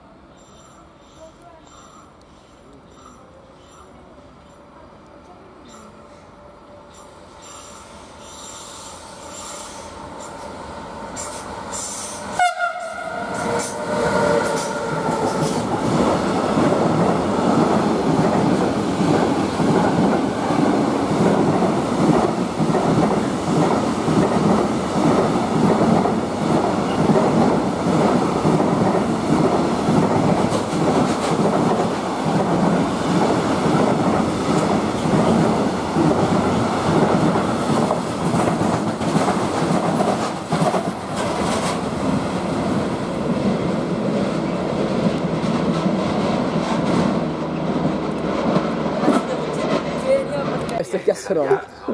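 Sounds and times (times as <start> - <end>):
freight wagons rumbling on rails: 12.1 - 51.4
train horn: 12.3 - 15.6.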